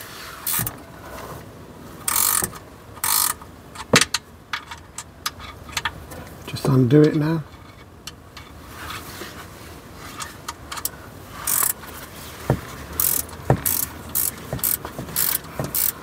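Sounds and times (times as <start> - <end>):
ratchet spanner clicking: 0.4 - 0.8, 2.0 - 5.9, 10.5 - 11.8, 12.6 - 16.0
dull metal knocks: 12.5 - 15.9.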